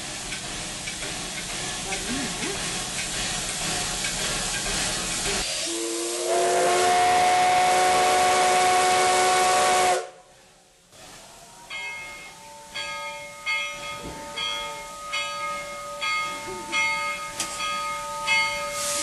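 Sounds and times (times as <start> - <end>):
steam hissing: 0.0 - 19.0
steam whistle chord: 5.5 - 10.3.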